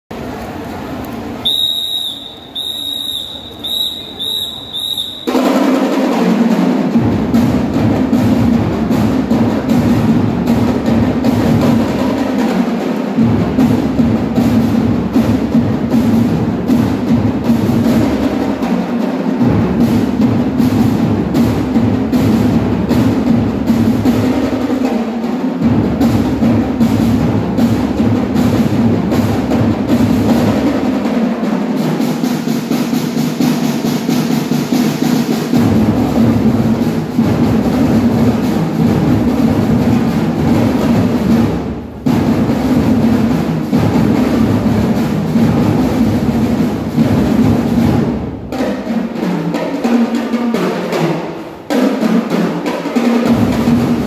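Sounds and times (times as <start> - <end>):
drum and lyre band drums: 0.2 - 54.0
high whistle blasts: 1.4 - 5.4.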